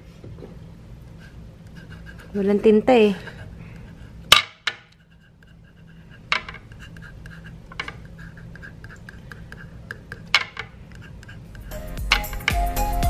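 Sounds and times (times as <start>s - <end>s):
pen scratching on paper: 1.2s - 2.6s, 5.0s - 10.3s, 10.9s - 11.8s.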